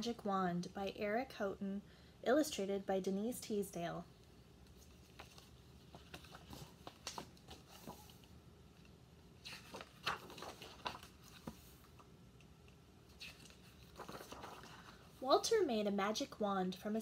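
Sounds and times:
book pages rustling and tapping: 4.7 - 15.0.

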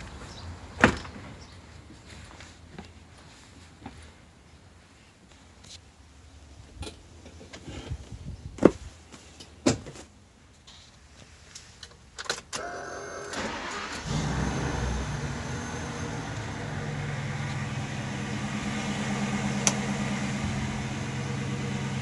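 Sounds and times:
engine cranking: 12.6 - 16.1
engine idling: 13.1 - 22.0.

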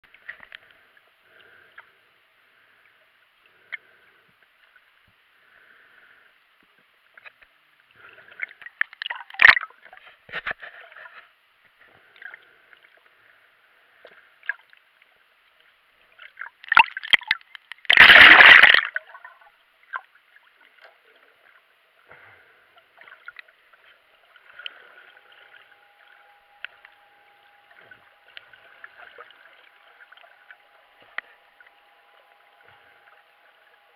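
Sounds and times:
faint steady hum: 0.0 - 33.9
rush of water: 16.6 - 19.0.

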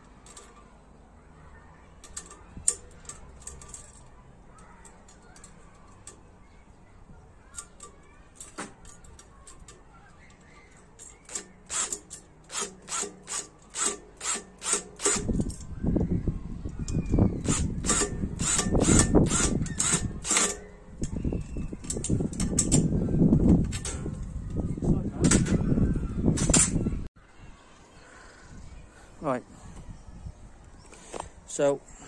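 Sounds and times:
cordless drill on bolt: 11.2 - 15.4, 17.0 - 20.7.

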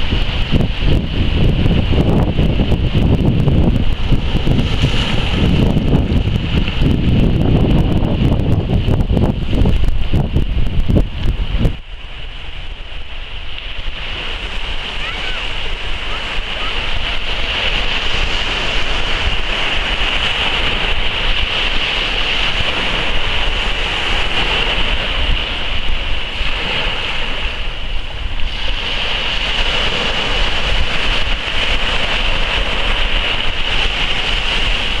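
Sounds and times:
waves breaking on a beach: 0.0 - 35.0
wind rumbling on microphone: 0.0 - 35.0.

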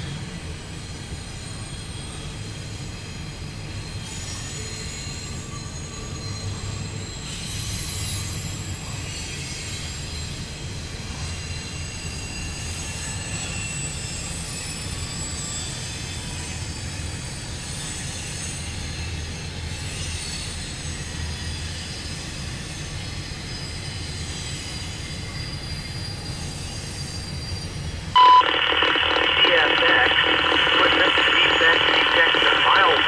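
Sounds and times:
train wheels rumbling on rail: 0.0 - 28.2
high wheel squeals: 3.8 - 28.1.

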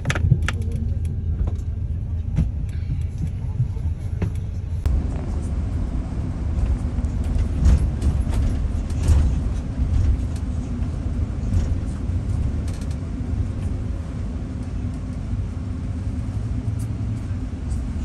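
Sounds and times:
bus engine and road rumble: 0.0 - 18.0
faint clicks and rattles: 6.6 - 13.8.

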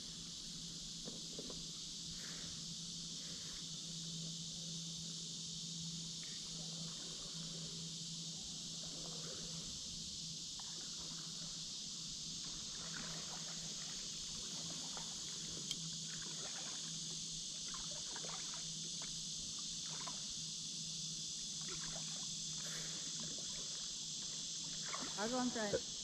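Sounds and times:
insect chorus: 0.0 - 26.0
paddle strokes splashing: 24.8 - 25.4.

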